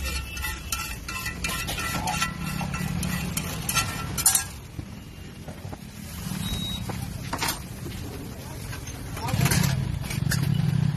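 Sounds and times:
metal utensils clinking on griddle: 0.0 - 4.7, 7.2 - 8.0, 8.6 - 10.6
road traffic rumble: 0.0 - 10.9.

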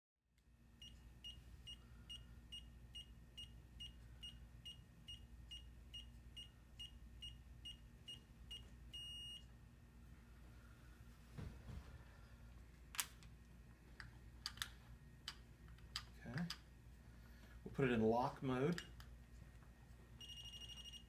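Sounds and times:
long beep: 0.8 - 9.4, 20.2 - 21.0
short high beeps: 8.1 - 9.4, 20.2 - 21.0.

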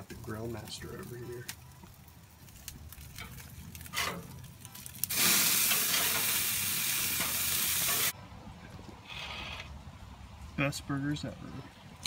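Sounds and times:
patties sizzling on a grill: 0.0 - 8.1.

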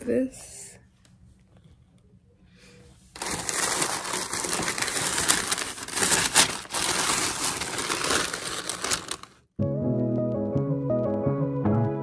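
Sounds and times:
tissue paper crinkling: 3.1 - 9.5.

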